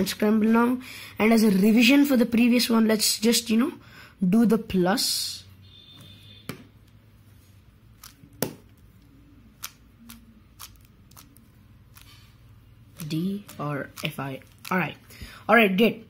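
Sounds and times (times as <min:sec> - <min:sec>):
puzzle cube clicking: 0:08.0 - 0:12.1, 0:12.9 - 0:15.0.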